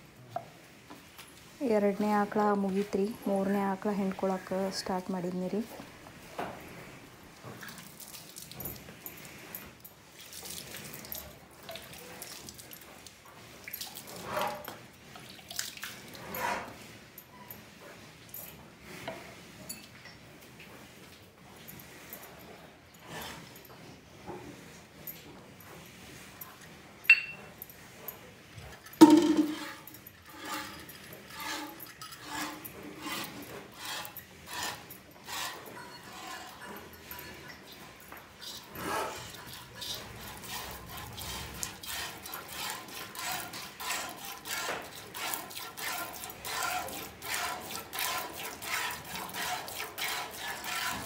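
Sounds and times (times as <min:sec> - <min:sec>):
high metallic clink: 0:27.0 - 0:27.7, 0:28.9 - 0:31.2
loud metal clank: 0:29.0 - 0:29.7.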